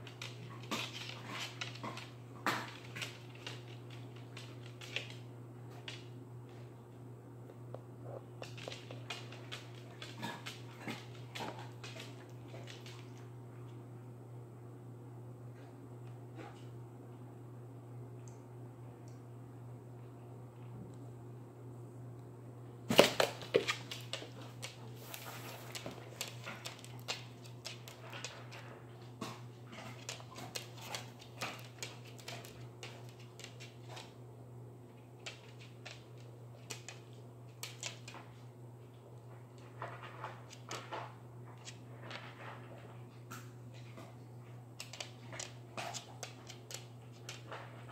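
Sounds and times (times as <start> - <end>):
steady low hum: 0.0 - 47.9.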